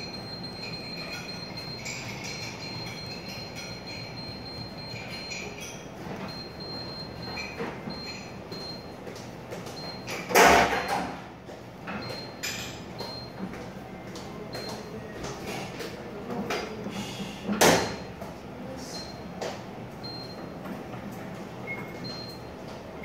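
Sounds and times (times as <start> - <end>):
high-pitched control panel beeps: 0.0 - 9.0.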